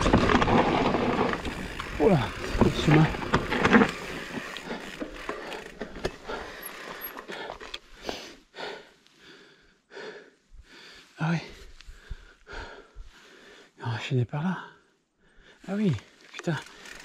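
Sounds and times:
mountain bike clattering: 0:00.0 - 0:07.9, 0:16.4 - 0:17.0
rider breathing hard: 0:01.5 - 0:13.8, 0:14.7 - 0:15.7.

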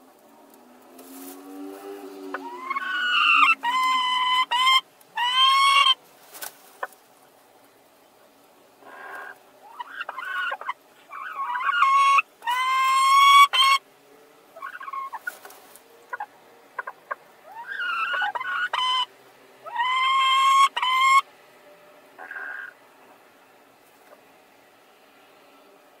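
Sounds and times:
hen complaining calls: 0:02.0 - 0:06.0, 0:08.8 - 0:13.8, 0:14.6 - 0:15.4, 0:16.1 - 0:21.2, 0:22.2 - 0:22.8
hens squawking: 0:02.2 - 0:07.0, 0:08.8 - 0:13.8, 0:14.6 - 0:21.2, 0:22.2 - 0:22.8.

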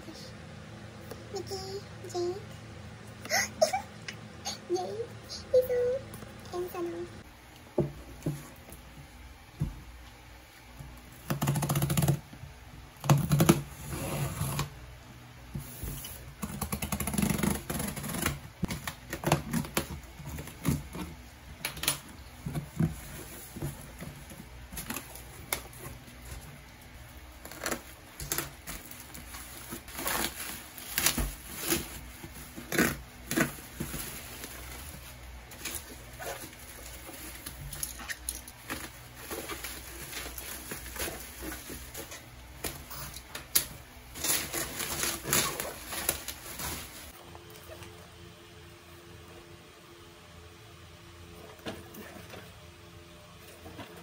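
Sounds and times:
cardboard scraping and rustling: 0:27.4 - 0:37.8, 0:38.6 - 0:43.2, 0:44.1 - 0:47.2.

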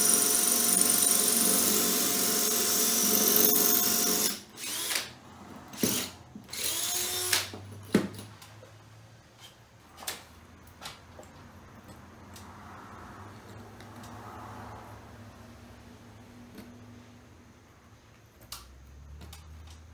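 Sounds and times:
power drill motor: 0:00.0 - 0:05.1, 0:05.7 - 0:07.5.

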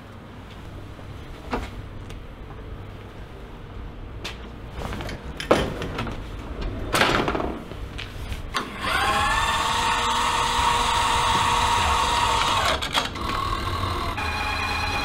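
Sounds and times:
equipment knocking and clattering: 0:04.8 - 0:06.2
machine whine: 0:08.6 - 0:15.0.

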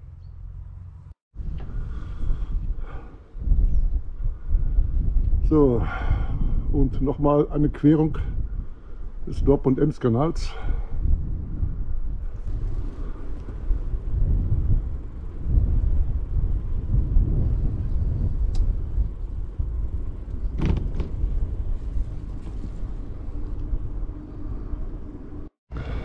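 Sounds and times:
wind rumble on microphone: 0:01.3 - 0:26.0
bicycle tyres rolling: 0:11.2 - 0:26.0.

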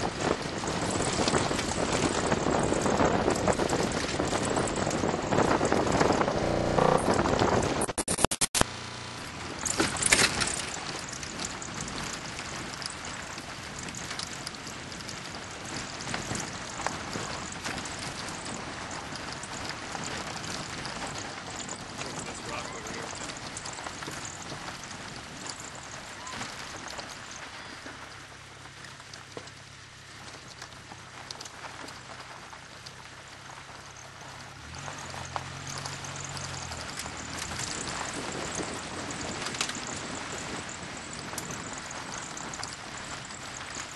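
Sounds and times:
vehicle driving on gravel: 0:00.0 - 0:43.9
vehicle jolt: 0:00.0 - 0:43.9
car engine running: 0:00.2 - 0:43.9
stones crunching under tyres: 0:03.8 - 0:07.4.

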